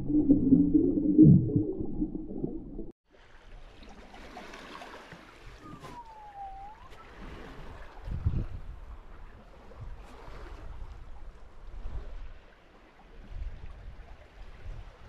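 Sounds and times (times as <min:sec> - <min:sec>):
water rushing along boat hull: 0:02.5 - 0:11.6.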